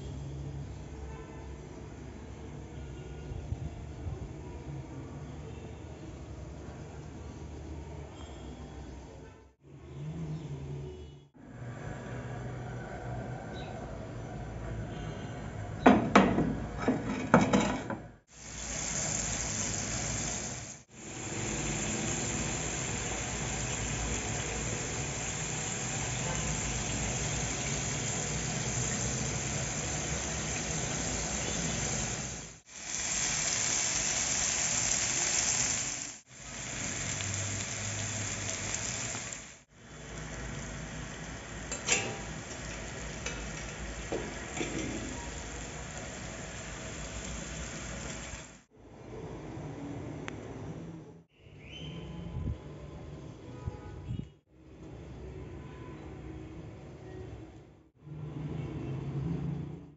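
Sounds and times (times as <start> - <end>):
meat sizzling on grill pan: 18.3 - 48.6.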